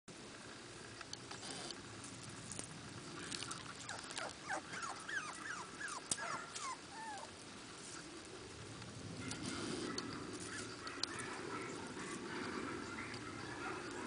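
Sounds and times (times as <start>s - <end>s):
puppy whimpering: 3.4s - 7.3s.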